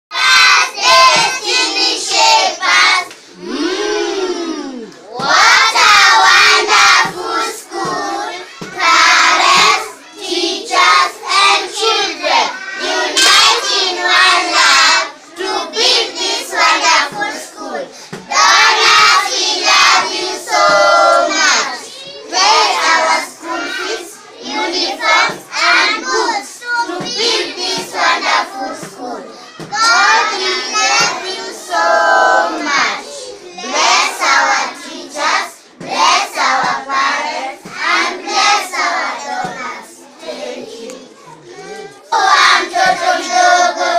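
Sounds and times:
children chanting together: 0.1s - 43.9s
hand claps: 13.2s - 13.7s.

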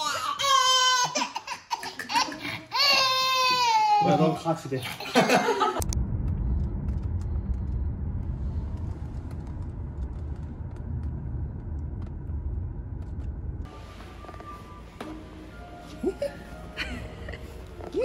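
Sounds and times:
car cabin road rumble: 5.8s - 16.5s.

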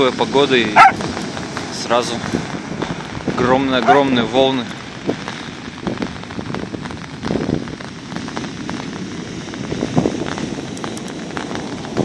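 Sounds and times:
waves breaking on beach: 0.0s - 12.0s
small clicks of pebbles: 10.7s - 11.2s.

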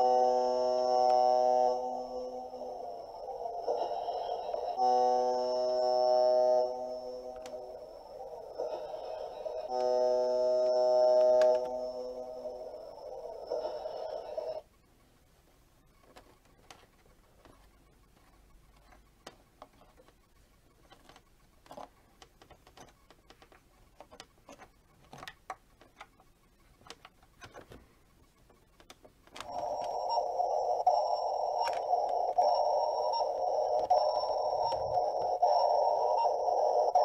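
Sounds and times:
toy electronic tone: 0.0s - 14.6s, 29.4s - 37.0s
faint clicks and taps: 15.9s - 29.9s.

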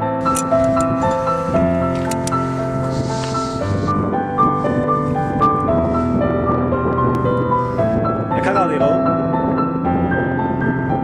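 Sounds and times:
piano melody: 0.0s - 11.0s.

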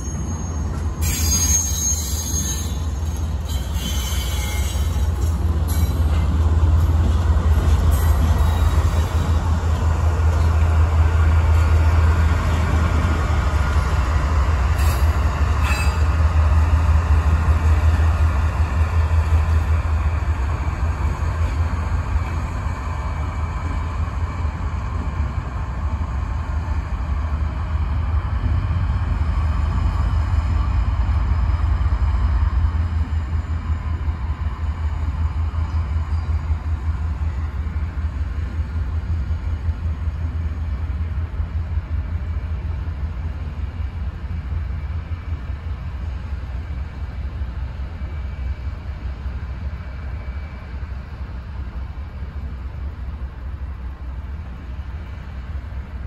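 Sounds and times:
wheels squealing on rail: 0.0s - 6.4s, 7.5s - 9.4s, 13.5s - 16.8s
diesel locomotive rumble: 0.0s - 56.0s.

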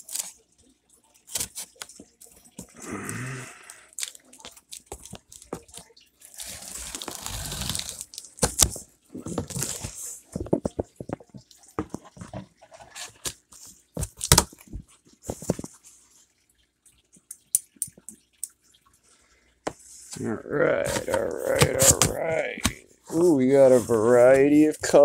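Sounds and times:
knife slicing tape and cardboard: 6.4s - 8.7s
scraping rustle of cardboard: 6.4s - 10.6s.

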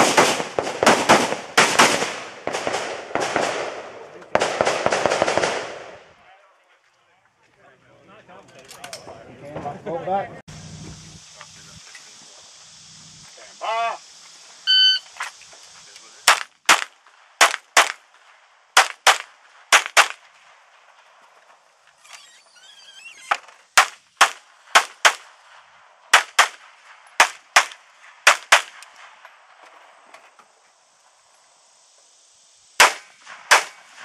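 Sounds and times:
pistol shots: 0.0s - 6.0s, 16.3s - 18.0s, 18.8s - 20.2s, 23.8s - 25.3s, 26.1s - 29.0s, 32.8s - 34.0s
shot timer beep: 14.7s - 15.1s.

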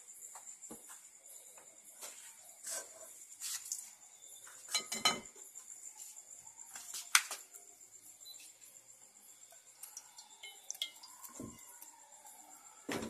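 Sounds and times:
high insect trill: 0.0s - 13.0s
kitchenware clinking and knocking: 4.7s - 5.4s.

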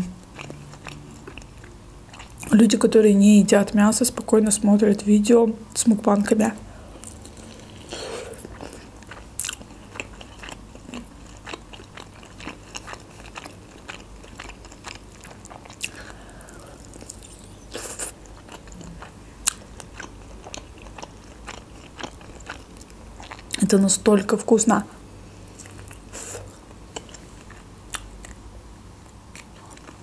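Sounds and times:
chewing chicken drumstick: 0.3s - 2.5s, 7.0s - 16.2s, 16.8s - 23.6s.

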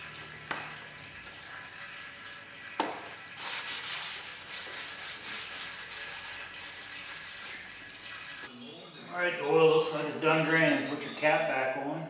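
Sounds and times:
rag rubbing on plastic: 3.4s - 7.6s.

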